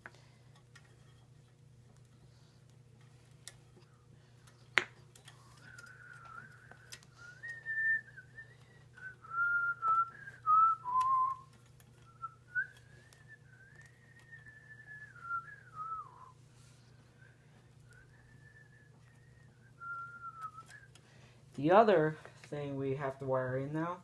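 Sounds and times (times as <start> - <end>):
person whistling a tune: 5.6 - 16.4, 17.9 - 21.0.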